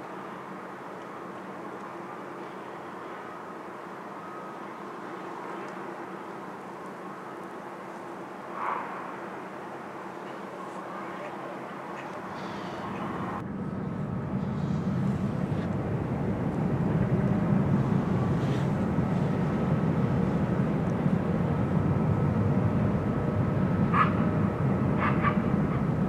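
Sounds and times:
faint steady whine: 0:00.0 - 0:26.0
tug diesel engine rumble: 0:10.2 - 0:26.0.

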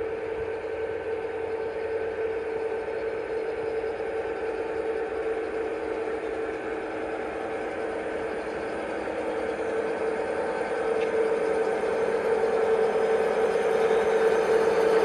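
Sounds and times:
model locomotive hum: 0:00.0 - 0:15.0.

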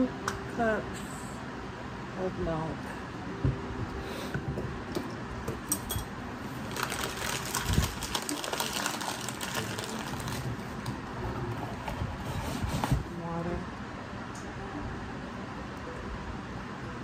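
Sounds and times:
paper packet crinkling and tearing: 0:06.6 - 0:10.8.

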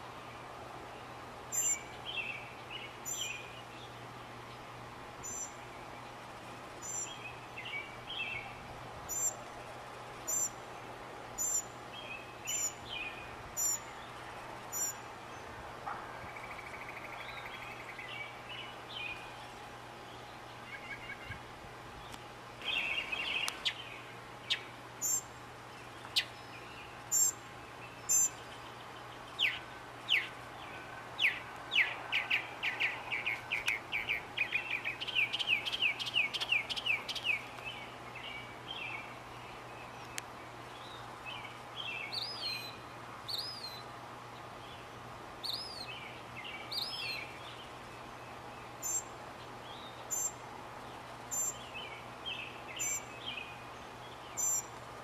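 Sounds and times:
faint steady hum: 0:00.0 - 0:55.0
mockingbird singing: 0:01.5 - 0:04.0, 0:05.2 - 0:05.7, 0:06.8 - 0:09.4, 0:10.3 - 0:10.6, 0:11.4 - 0:15.5, 0:26.0 - 0:39.2, 0:48.6 - 0:50.4, 0:51.3 - 0:54.7.

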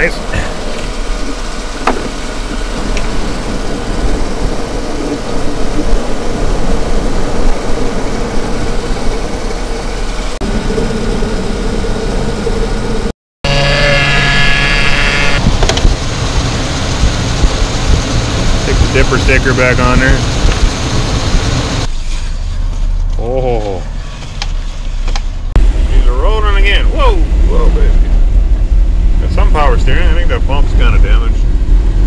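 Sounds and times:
truck engine idling: 0:00.0 - 0:32.0
high multi-tone whine: 0:08.9 - 0:21.9.

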